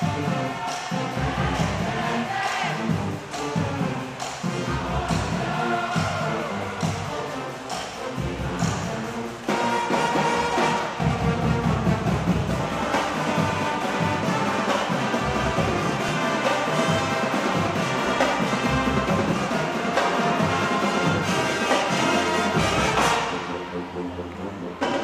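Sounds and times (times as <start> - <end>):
snare drumline: 0.0 - 23.7, 24.7 - 25.0
brass band playing: 0.0 - 25.0.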